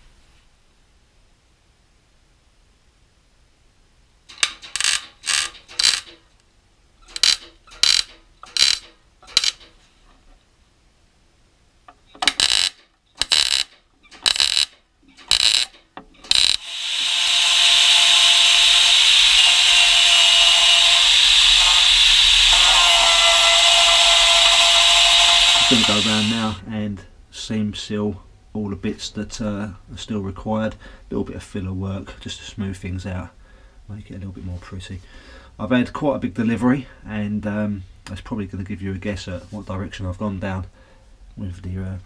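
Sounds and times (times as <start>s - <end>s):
welder crackling bursts: 12.3s - 26.6s
angle grinder grinding: 12.4s - 14.7s, 15.3s - 15.7s, 16.3s - 26.6s.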